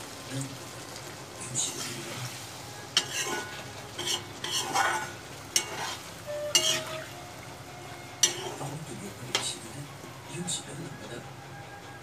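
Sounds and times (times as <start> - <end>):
curry sizzling: 0.0 - 12.0
metal spatula scraping iron pan: 3.0 - 7.2, 8.2 - 9.6.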